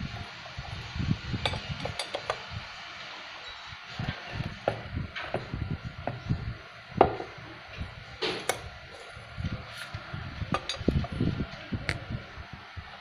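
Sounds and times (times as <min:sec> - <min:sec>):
screwdriver clinking on metal engine: 0:01.4 - 0:02.5.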